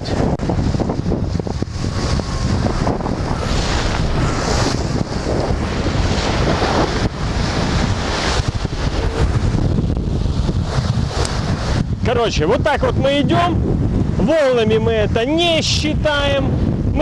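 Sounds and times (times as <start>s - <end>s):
bow wash hiss: 0.0s - 12.8s
water splashing along hull: 0.0s - 17.0s
wind buffeting microphone: 0.0s - 17.0s.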